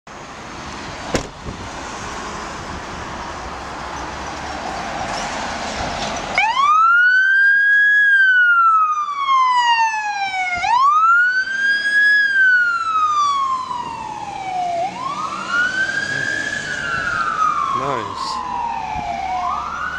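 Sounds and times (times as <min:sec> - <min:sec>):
road traffic passing: 0:00.1 - 0:19.9
fire engine siren wailing: 0:06.3 - 0:19.9.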